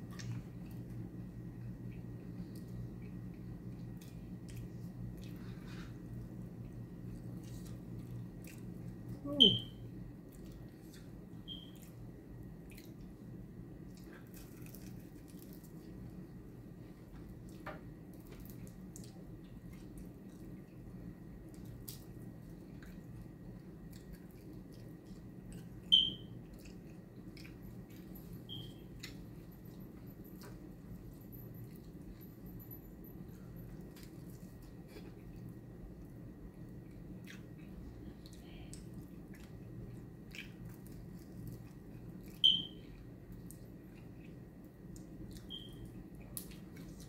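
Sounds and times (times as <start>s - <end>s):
chewing and lip smacking: 1.6s - 9.1s, 12.6s - 13.2s, 13.8s - 16.0s, 18.2s - 20.8s, 21.4s - 32.3s, 33.4s - 47.0s
wet sticky eating sounds: 33.9s - 47.0s.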